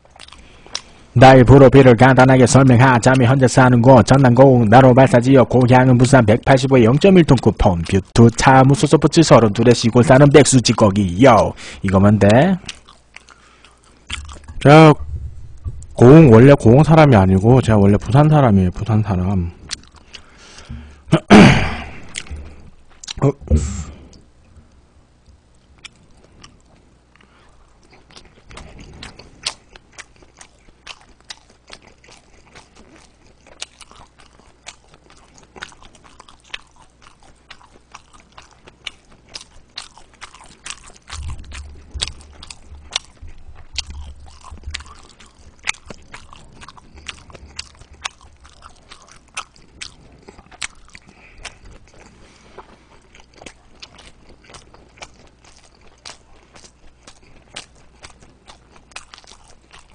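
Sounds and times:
chewing with wet mouth smacks: 0.0s - 1.0s, 6.5s - 14.6s, 19.6s - 20.7s, 25.8s - 59.9s.

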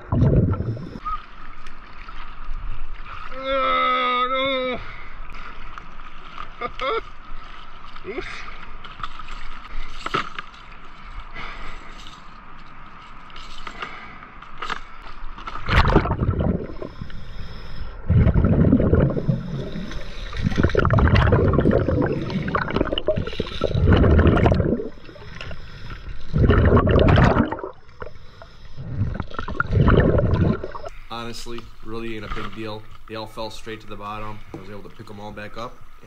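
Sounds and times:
underwater bubbles gurgling: 0.0s - 1.0s, 15.6s - 31.0s
faint clicks and scrapes: 8.6s - 15.8s.

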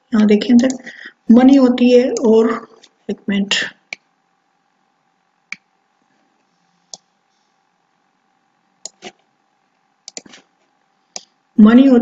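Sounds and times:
computer mouse clicking: 8.8s - 9.2s, 10.0s - 10.4s.

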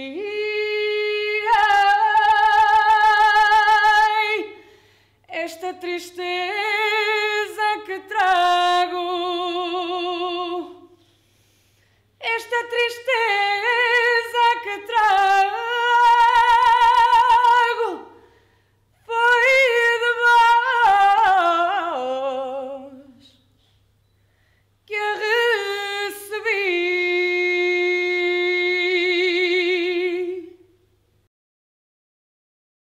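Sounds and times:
woman singing unaccompanied: 0.0s - 4.6s, 5.3s - 11.0s, 12.2s - 18.2s, 19.0s - 23.4s, 24.9s - 30.7s.

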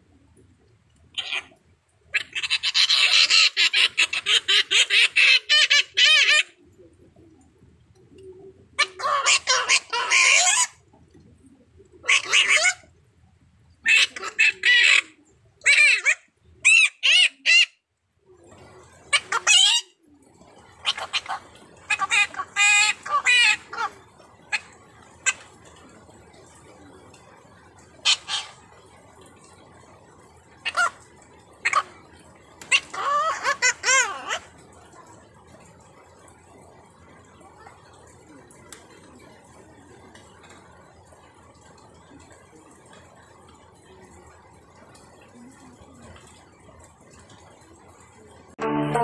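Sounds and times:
parrots squawking and screeching: 1.2s - 6.6s, 8.8s - 10.8s, 12.0s - 12.8s, 13.8s - 17.8s, 19.1s - 19.9s, 20.8s - 23.9s, 24.5s - 25.6s, 28.0s - 28.6s, 30.6s - 31.9s, 32.6s - 34.5s.

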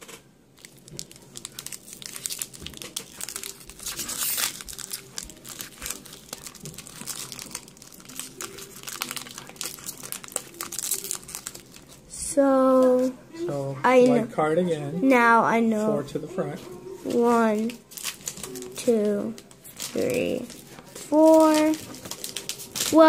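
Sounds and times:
foil wrapper crinkling: 0.0s - 12.1s, 17.2s - 23.0s.

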